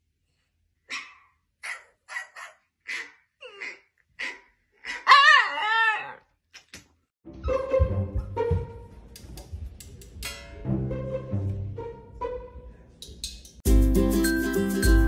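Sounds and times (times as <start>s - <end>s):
music: 7.2s - 9.3s, 10.2s - 15.0s.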